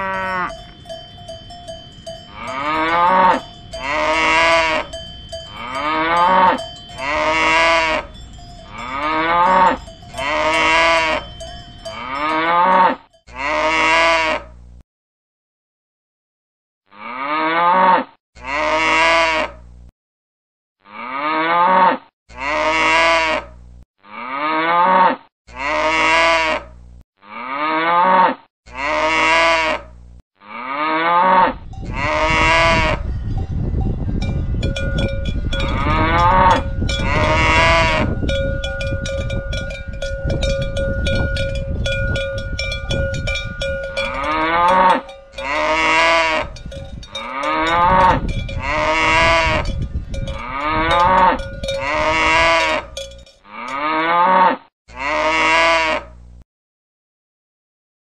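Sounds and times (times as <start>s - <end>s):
cowbell ringing: 0.0s - 13.6s, 31.7s - 54.2s
cows mooing: 0.0s - 14.4s, 16.9s - 19.5s, 20.9s - 26.6s, 27.2s - 29.8s, 30.4s - 33.0s, 34.2s - 56.1s
outdoor field noise: 0.0s - 14.8s, 18.4s - 19.9s, 22.3s - 27.8s, 28.7s - 56.4s.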